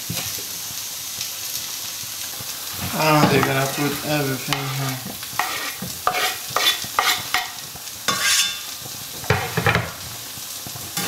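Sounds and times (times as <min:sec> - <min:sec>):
egg whites sizzling in pan: 0:00.0 - 0:11.0
knife scraping wooden board: 0:05.4 - 0:07.2, 0:08.1 - 0:08.5.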